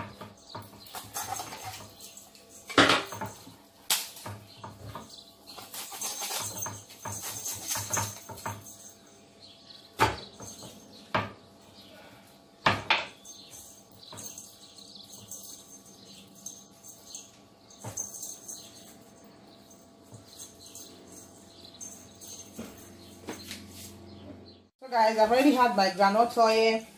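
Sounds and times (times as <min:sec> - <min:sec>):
knife scraping on cutting board: 0:05.6 - 0:07.9.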